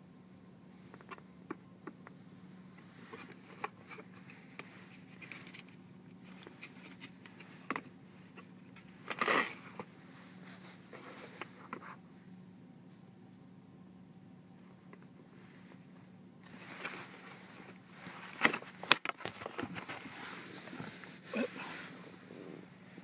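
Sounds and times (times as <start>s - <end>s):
steady low hum: 0.0s - 23.0s
plastic packaging clicks and rustles: 18.0s - 20.1s.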